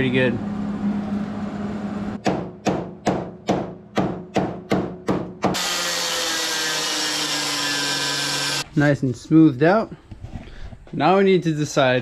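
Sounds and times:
power grinder running: 0:05.6 - 0:08.6.

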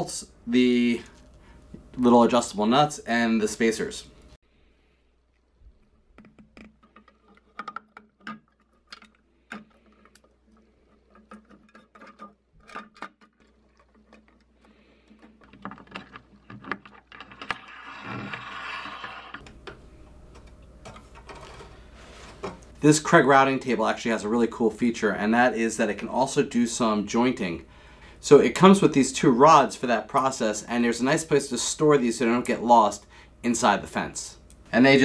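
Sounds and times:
plastic scraping on metal: 0:06.2 - 0:19.4.

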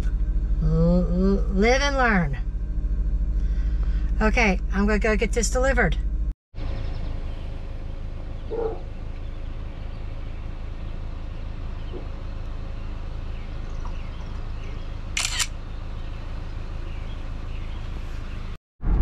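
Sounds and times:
low background rumble: 0:00.0 - 0:19.0
phone camera shutter: 0:15.2 - 0:15.5.

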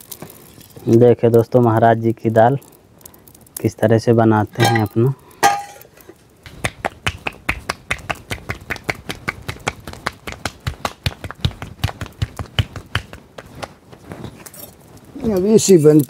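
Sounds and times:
hands slapping dough: 0:06.5 - 0:13.8.

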